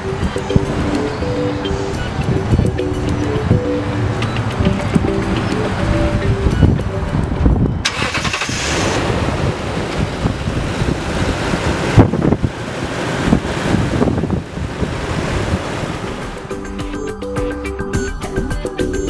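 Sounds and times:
truck engine rumbling: 0:00.0 - 0:18.5.

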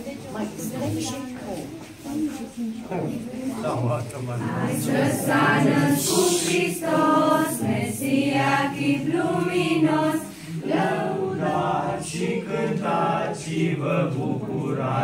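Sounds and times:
choir singing a carol: 0:04.4 - 0:15.0.

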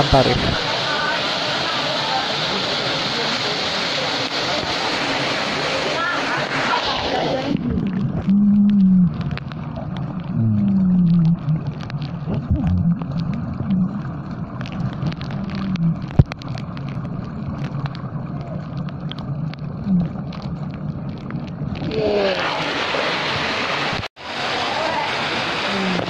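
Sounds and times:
waterfall splashing hiss: 0:00.0 - 0:07.5, 0:21.8 - 0:26.0
underwater churning rumble: 0:00.0 - 0:26.0
wavering low tones: 0:07.3 - 0:22.4
small underwater clicks: 0:07.5 - 0:21.9.

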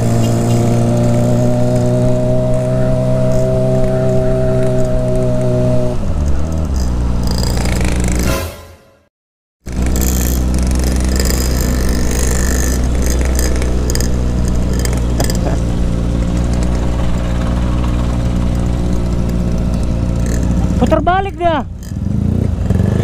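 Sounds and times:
motorcycle engine at low revs: 0:00.0 - 0:08.3, 0:09.6 - 0:23.0.

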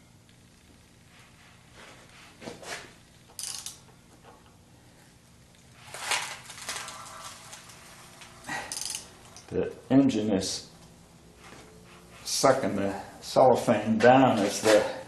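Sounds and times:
socket wrench clicking: 0:03.3 - 0:03.9, 0:08.7 - 0:09.5
plastic sheet rustling: 0:05.8 - 0:08.1.

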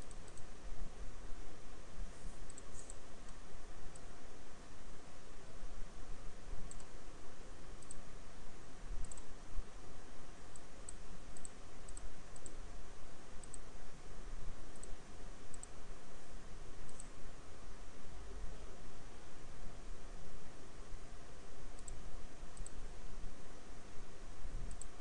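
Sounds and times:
computer mouse clicking: 0:00.0 - 0:00.5, 0:02.4 - 0:04.1, 0:06.6 - 0:07.0, 0:07.8 - 0:08.0, 0:09.0 - 0:09.3, 0:10.5 - 0:12.6, 0:13.4 - 0:13.7, 0:14.7 - 0:15.8, 0:16.8 - 0:17.2, 0:21.8 - 0:22.8, 0:24.6 - 0:25.0
faint hiss and hum: 0:00.0 - 0:25.0.

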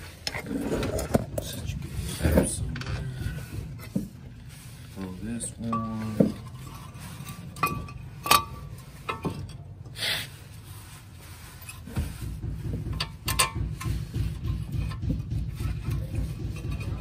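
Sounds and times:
metal car parts clinking: 0:05.4 - 0:10.0, 0:11.5 - 0:11.9, 0:12.8 - 0:17.0
fast low rattle: 0:11.7 - 0:17.0.

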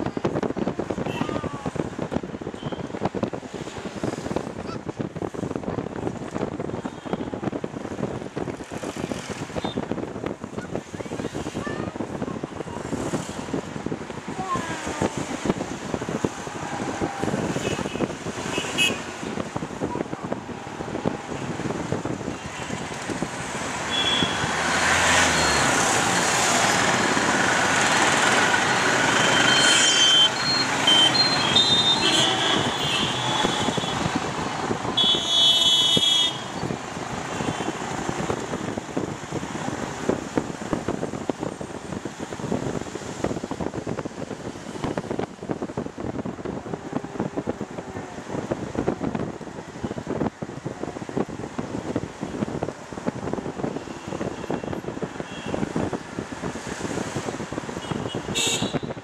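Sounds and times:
traffic engines and road noise: 0:00.0 - 0:59.0
vehicle horns honking: 0:17.6 - 0:19.2, 0:23.9 - 0:24.6, 0:29.0 - 0:34.2, 0:35.0 - 0:36.6, 0:57.8 - 0:59.0.

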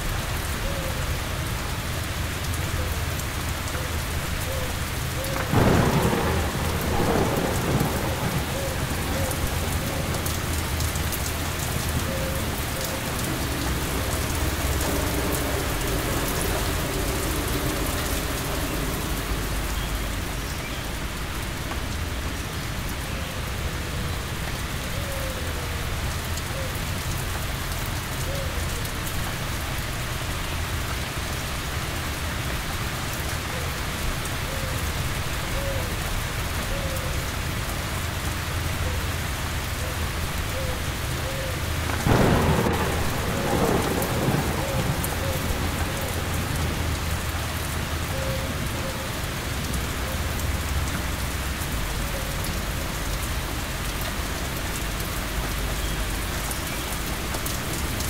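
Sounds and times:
heavy rain falling: 0:00.0 - 0:58.0
thunder rumble: 0:04.3 - 0:25.0, 0:40.8 - 0:54.2.

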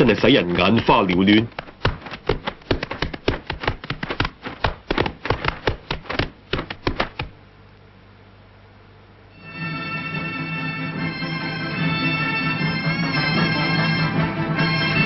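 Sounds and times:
fists smacking training balls: 0:00.0 - 0:07.4
faint low hum: 0:00.0 - 0:15.0.

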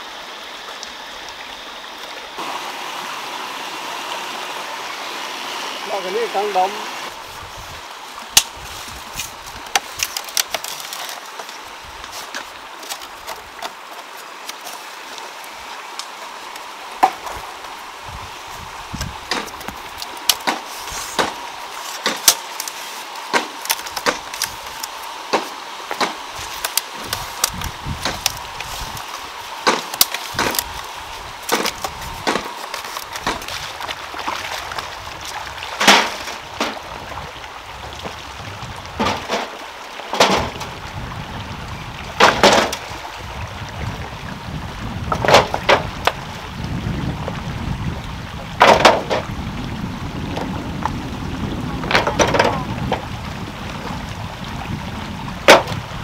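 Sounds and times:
bamboo being cut with a blade: 0:19.0 - 0:33.7.

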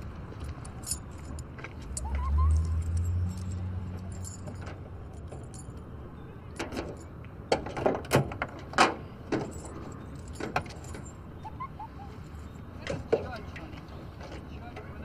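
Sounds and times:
car keys jangling: 0:00.3 - 0:05.9, 0:09.3 - 0:11.3.

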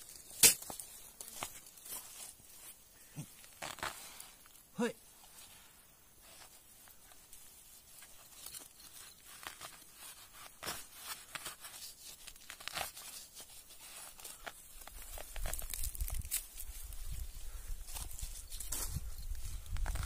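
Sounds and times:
plant leaves tearing and snapping: 0:03.2 - 0:04.2, 0:10.6 - 0:13.4, 0:14.1 - 0:17.0.

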